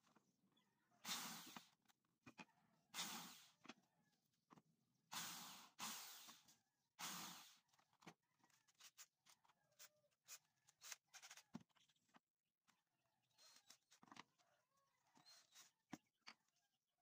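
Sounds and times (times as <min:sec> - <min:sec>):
drill boring into wood: 0:05.1 - 0:06.4, 0:07.0 - 0:07.6.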